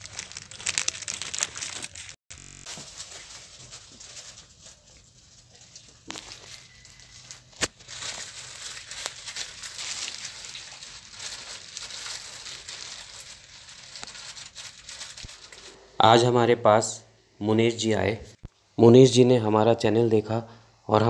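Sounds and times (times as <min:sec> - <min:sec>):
plastic bags crinkling: 0:00.0 - 0:15.9.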